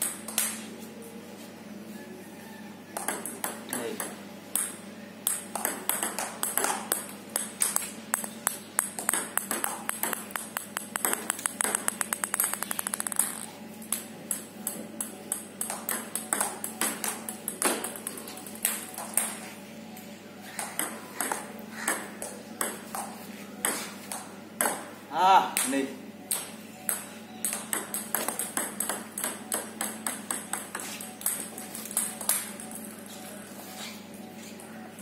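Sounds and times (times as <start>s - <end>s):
ping pong ball bouncing: 3.0s - 19.4s, 20.6s - 24.9s, 25.5s - 32.9s
ping pong ball clicking: 3.0s - 19.4s, 26.3s - 32.8s.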